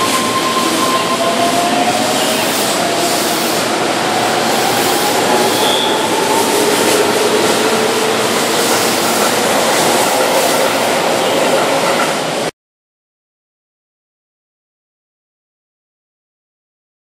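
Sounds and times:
train wheels rumbling on rails: 0.0s - 12.5s.

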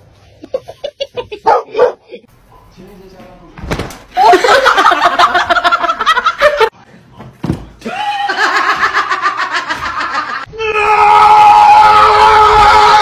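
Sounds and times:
person laughing hard: 4.2s - 6.7s, 7.8s - 10.5s.

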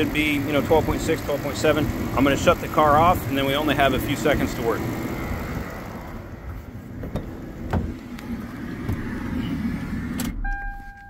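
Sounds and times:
car engine idling: 0.0s - 10.9s.

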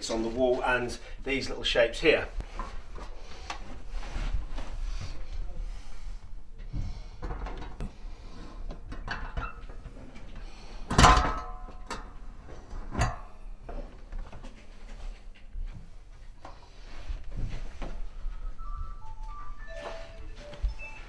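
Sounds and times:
metal heater knocking on brackets: 10.9s - 12.1s.

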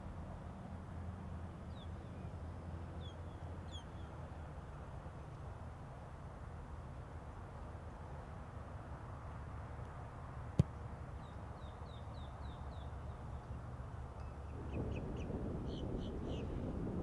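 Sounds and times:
outdoor background noise: 0.0s - 17.0s
boot kicking a football: 10.6s - 10.8s.

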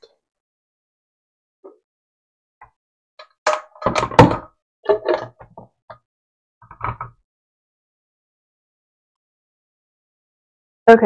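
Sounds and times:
blender jar clunking on base: 3.5s - 5.6s.

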